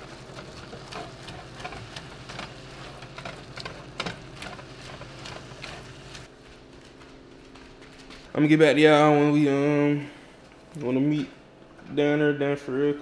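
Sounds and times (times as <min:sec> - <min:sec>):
meat sizzling in a skillet: 0:04.0 - 0:06.3.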